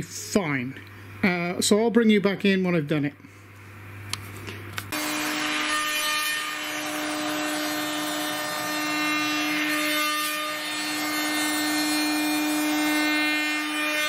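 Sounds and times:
rough cutting noise: 4.9s - 14.0s.

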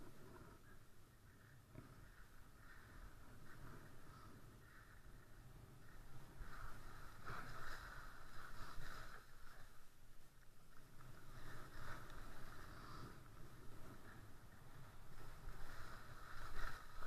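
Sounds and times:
wind rumble on microphone: 0.0s - 17.0s
skis carving over snow: 1.4s - 17.0s.

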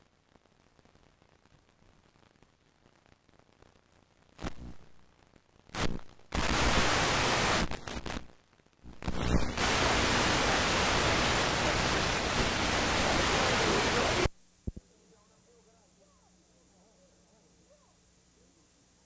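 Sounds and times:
videotape static hiss: 0.0s - 19.0s.

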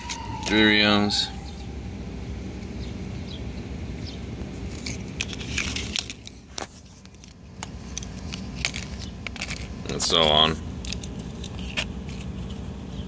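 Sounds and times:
low outdoor rumble: 0.0s - 13.0s
paper cards shuffled by hand: 4.6s - 12.8s.

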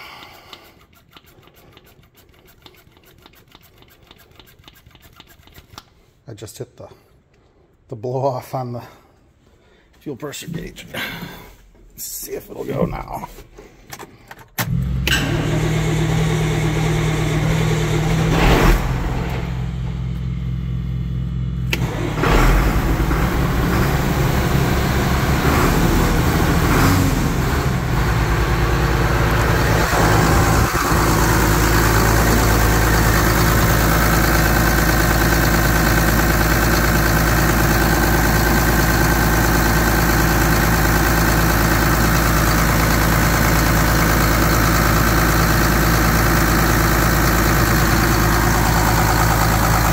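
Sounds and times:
tractor engine starting and idling: 13.8s - 49.9s.

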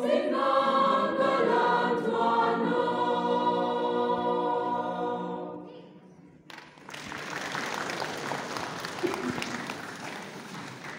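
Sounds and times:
women's choir singing: 0.0s - 5.8s
applause: 6.5s - 10.9s.

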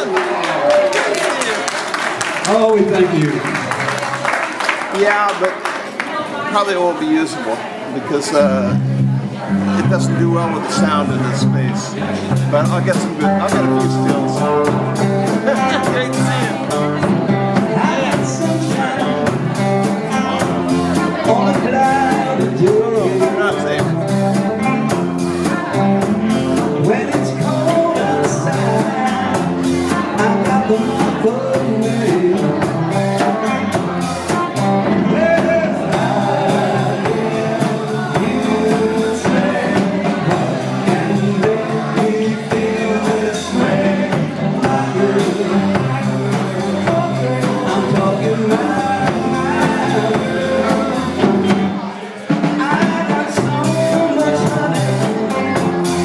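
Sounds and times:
live rock band playing: 0.0s - 56.0s
person singing: 12.7s - 56.0s.

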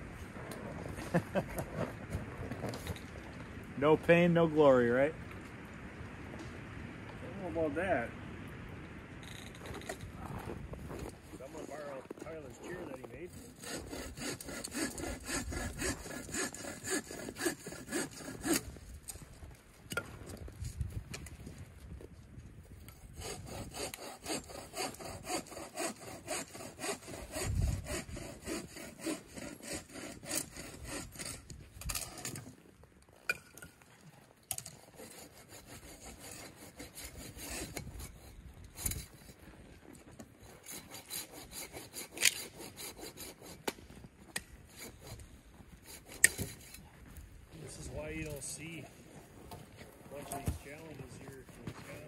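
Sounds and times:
hand saw cutting wood: 11.3s - 19.2s, 22.9s - 32.6s, 34.5s - 46.9s, 47.6s - 48.7s, 50.1s - 52.0s.

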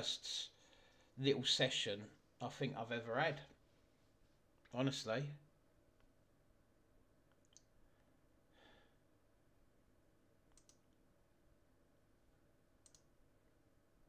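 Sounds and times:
soft clicks: 7.3s - 7.8s, 10.5s - 11.0s, 12.8s - 13.2s.

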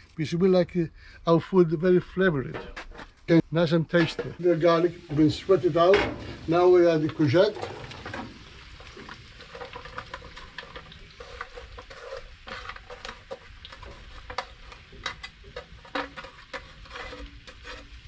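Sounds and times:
vegetables sizzling in oil: 4.4s - 18.0s.

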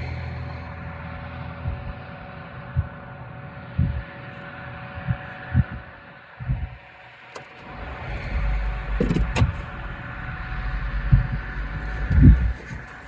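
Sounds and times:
vehicle engine rumbling: 0.0s - 13.0s
heavy low thumps: 1.2s - 4.1s, 5.0s - 6.8s, 7.7s - 13.0s.

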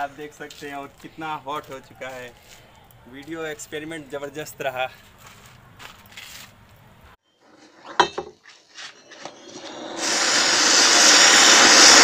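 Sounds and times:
firework fountain hissing: 9.5s - 12.0s.

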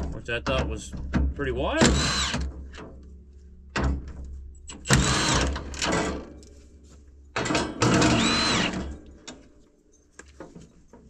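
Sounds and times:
cordless drill whining: 1.8s - 2.5s, 4.8s - 5.8s, 7.8s - 9.0s.

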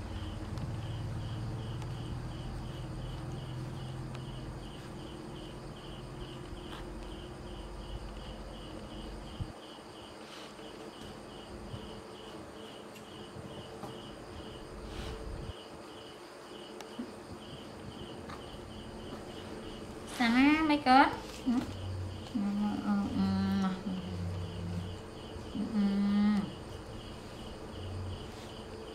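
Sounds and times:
insect chirping: 0.0s - 28.9s.

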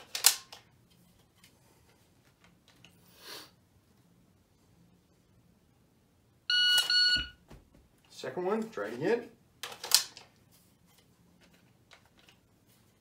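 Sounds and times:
shot timer start beep: 6.5s - 7.3s.

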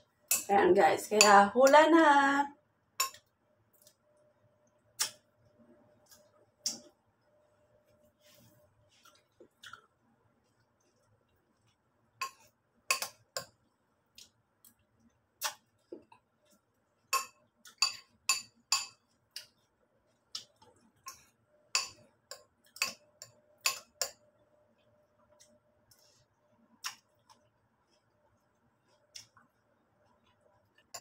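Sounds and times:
spoon clinking against bowl: 17.1s - 19.0s.

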